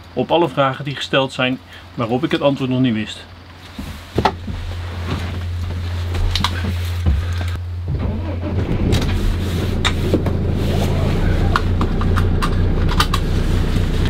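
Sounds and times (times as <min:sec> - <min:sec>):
engine idling: 0:04.6 - 0:14.0
knocks clicks and rustling: 0:11.5 - 0:13.4.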